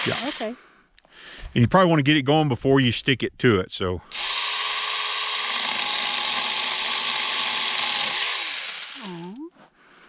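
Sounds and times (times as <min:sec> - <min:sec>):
mini chainsaw cutting a branch: 0:00.0 - 0:00.6, 0:04.1 - 0:09.4.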